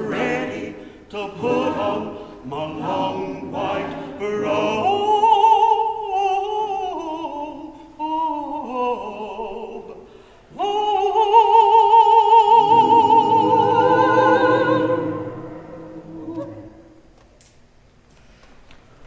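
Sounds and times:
choir low sustained chord: 0.0s - 5.0s, 12.3s - 17.1s
man singing with vibrato: 0.0s - 17.0s
singer breath: 0.8s - 1.1s, 10.0s - 10.6s.

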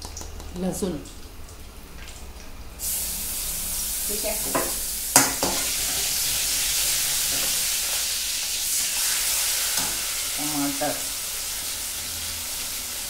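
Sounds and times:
garlic sizzling in oil: 2.8s - 13.0s.

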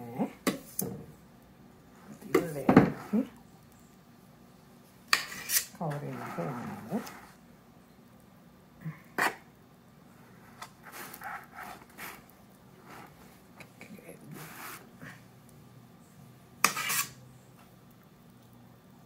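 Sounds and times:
spatula scraping icing: 5.1s - 7.4s, 9.2s - 9.4s, 10.2s - 13.3s, 16.6s - 17.2s.

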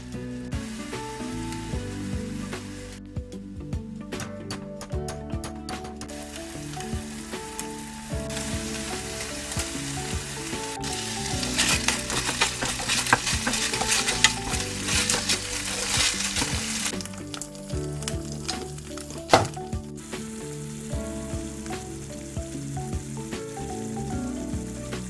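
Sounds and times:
meat sizzling in a pan: 6.6s - 25.0s
spatula scraping a pan: 10.8s - 16.9s.

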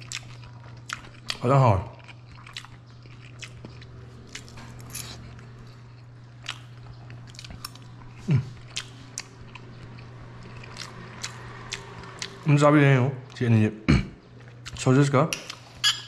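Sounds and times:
close-up chewing: 0.0s - 12.4s
steady low hum: 0.0s - 16.0s.

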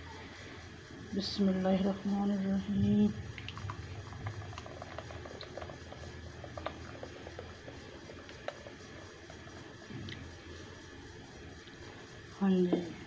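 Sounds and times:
small liquid plops and pops: 3.3s - 8.9s
thick liquid pouring into bowl: 3.3s - 10.3s.

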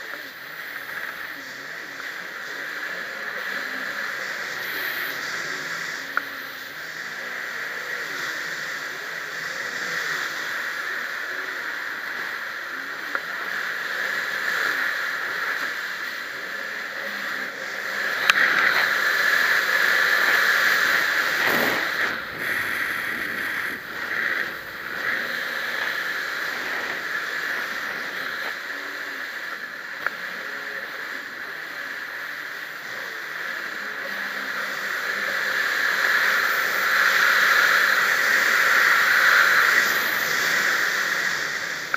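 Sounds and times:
jet ski engine: 0.0s - 41.9s
water rushing: 18.2s - 28.6s
wind on microphone: 20.0s - 28.6s.

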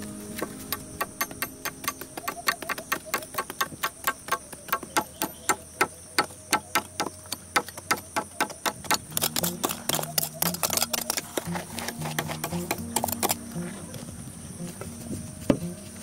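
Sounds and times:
high-pitched hum: 0.0s - 3.6s, 9.1s - 16.0s
low pitched tones: 0.0s - 3.6s, 9.1s - 16.0s.

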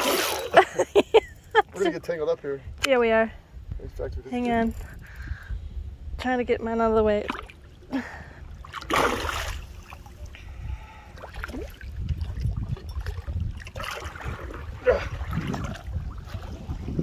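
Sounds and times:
steady low rumble: 0.5s - 17.0s
fish splashing water: 8.6s - 10.0s.

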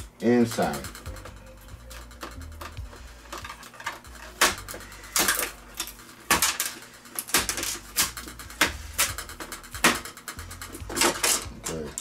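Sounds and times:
plastic strips prying off metal: 2.2s - 12.0s.

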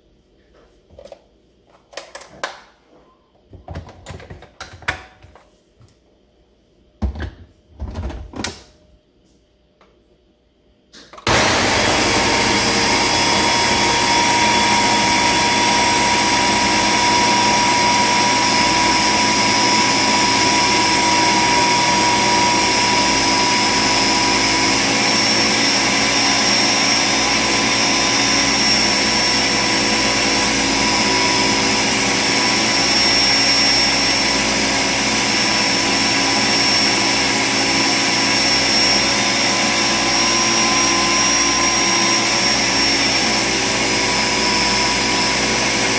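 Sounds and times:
blender motor running: 11.2s - 45.9s.

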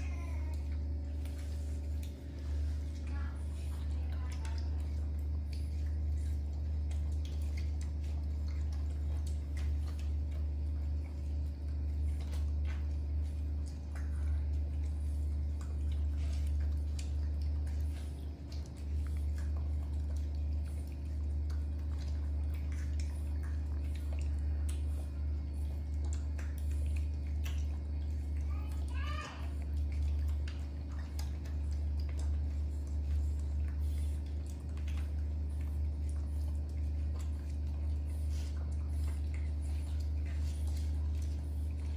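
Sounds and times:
steady low hum: 0.0s - 41.9s
monkeys chewing: 13.6s - 41.9s.

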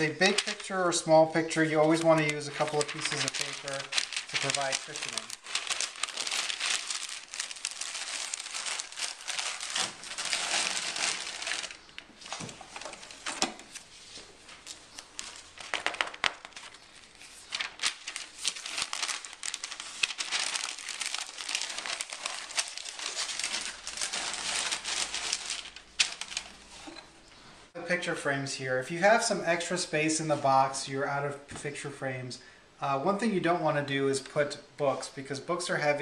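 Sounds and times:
packing paper crinkling: 0.0s - 27.0s.

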